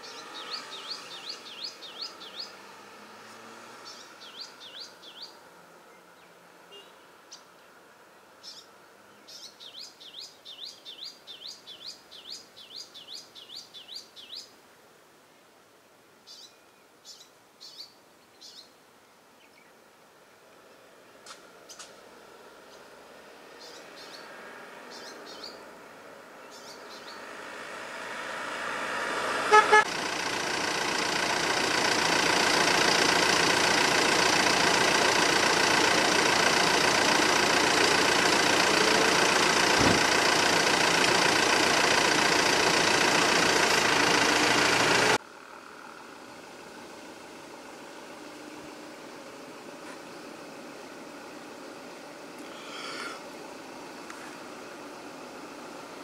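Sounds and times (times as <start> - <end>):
vehicle running close by: 0.0 - 13.5, 20.2 - 56.0
faint bird chirps: 3.8 - 7.7, 16.2 - 18.8
horn tooting: 29.3 - 29.9.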